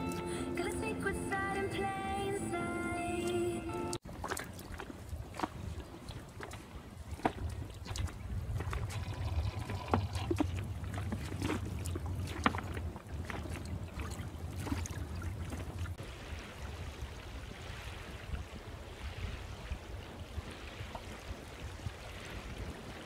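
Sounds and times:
water lapping over sand: 0.0s - 23.0s
water splashing against hull: 1.3s - 23.0s.

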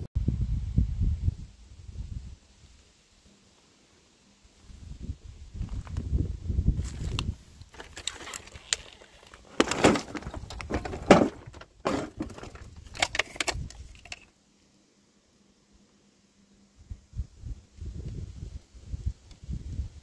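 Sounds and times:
scrap metal clinking and rattling: 7.7s - 14.3s.

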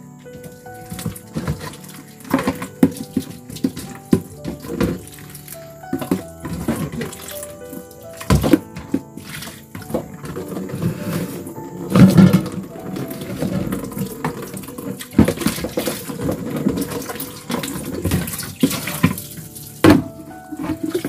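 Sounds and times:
water splashing and running: 0.0s - 21.0s
knocks and clatters: 0.3s - 21.0s.

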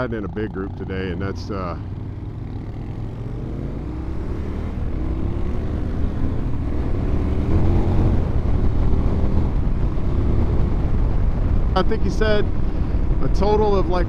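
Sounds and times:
motorcycle engine accelerating: 0.0s - 14.0s
wind and road noise: 0.0s - 14.0s.

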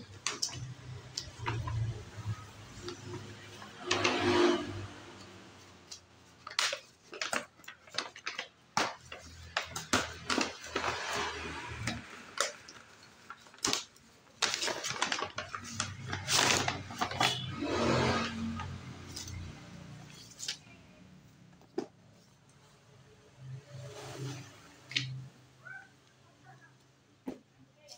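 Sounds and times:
paper bag crinkling and rustling: 0.0s - 4.9s, 6.2s - 20.7s.

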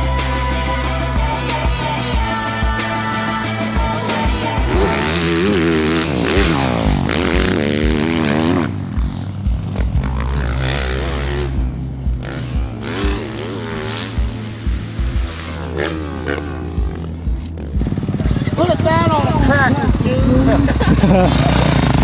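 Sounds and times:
music with steady beat: 0.0s - 10.3s, 11.4s - 18.4s
dirt bike engines revving: 0.0s - 22.0s.

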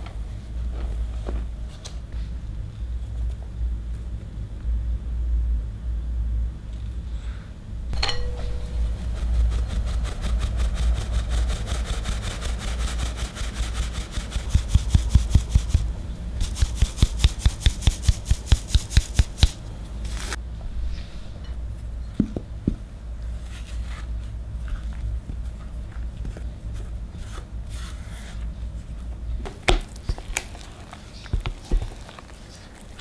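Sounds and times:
steady low hum: 0.0s - 33.0s
metal sieve tapping: 8.0s - 10.6s
spatula scraping dry flour: 8.6s - 19.2s, 29.9s - 33.0s.

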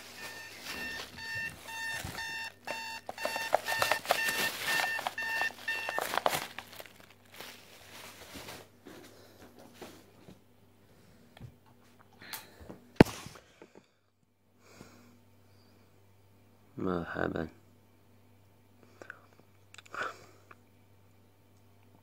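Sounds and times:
alarm clock beeping: 0.0s - 6.3s
handling noise: 0.0s - 10.1s.

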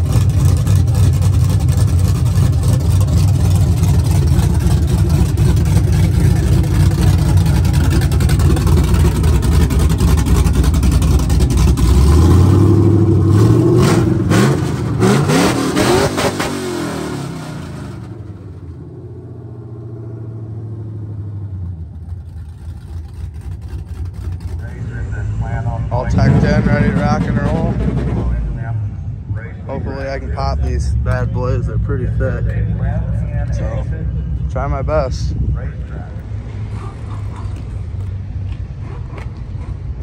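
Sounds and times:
pickup engine idling and revving: 0.0s - 40.0s.

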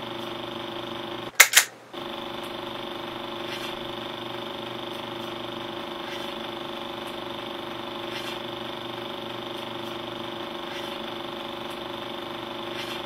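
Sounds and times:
mechanical whir with low hum: 0.0s - 13.0s
camera shutter clicks: 1.4s - 1.7s.

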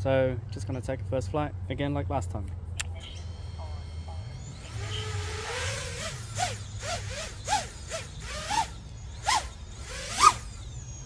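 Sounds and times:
drone motors whining: 2.9s - 11.0s.

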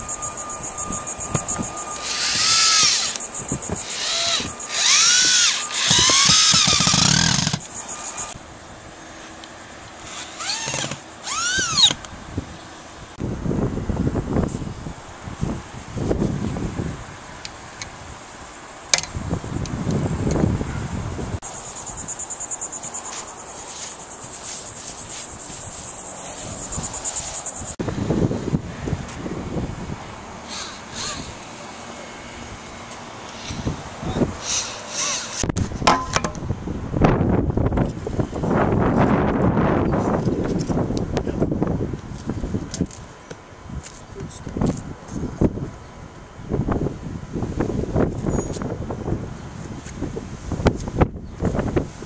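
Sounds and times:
electric drill motor whining: 0.0s - 8.4s, 10.0s - 12.1s, 30.4s - 33.8s, 34.4s - 35.6s
insects trilling: 0.0s - 8.4s, 21.4s - 27.8s.

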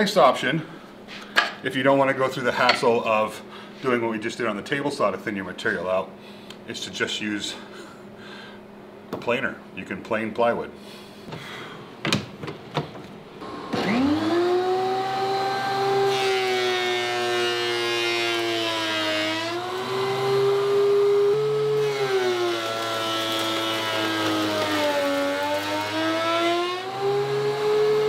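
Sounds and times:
thickness planer motor whine: 13.4s - 28.0s.

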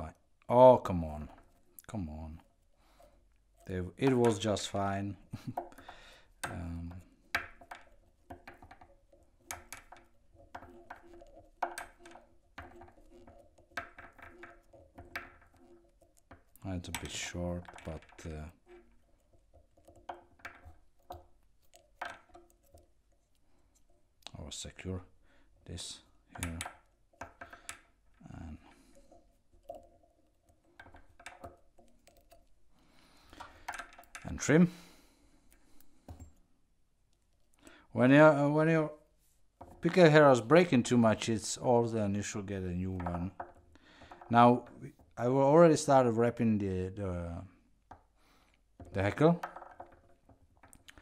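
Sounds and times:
light clicks and taps of tools: 2.9s - 25.0s, 25.7s - 36.4s, 42.4s - 45.2s.

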